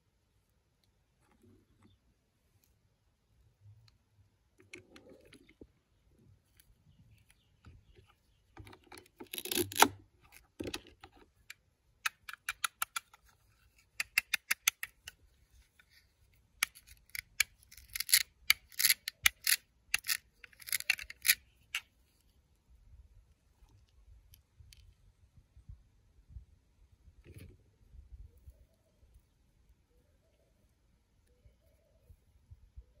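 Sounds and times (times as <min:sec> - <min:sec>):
plastic toy pieces clicking: 0:12.0 - 0:13.2, 0:13.9 - 0:15.2, 0:16.6 - 0:21.9.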